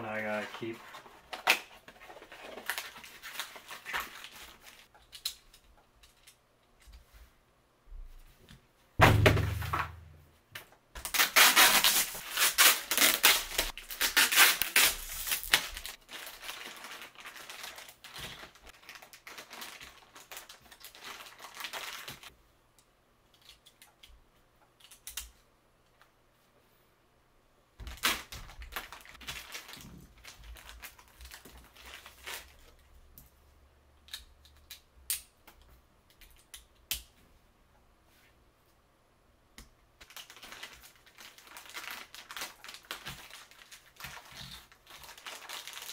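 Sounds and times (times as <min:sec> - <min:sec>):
plastic bags crinkling and tearing: 0:00.2 - 0:04.9, 0:11.0 - 0:22.3, 0:27.8 - 0:32.9, 0:40.0 - 0:45.9
thump: 0:09.0 - 0:10.1.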